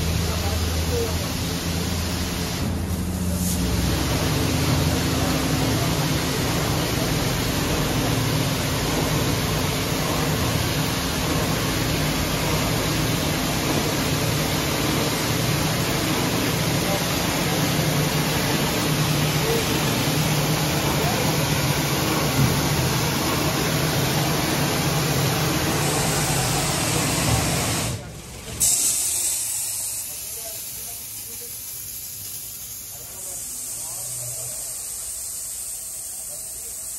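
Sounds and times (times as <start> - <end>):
water spray hissing: 28.6 - 36.9.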